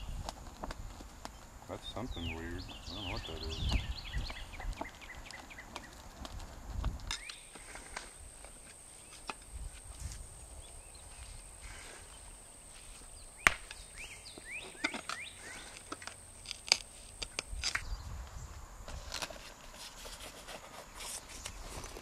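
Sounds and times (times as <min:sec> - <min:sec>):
pick chopping into dirt and rocks: 0:13.4 - 0:17.9.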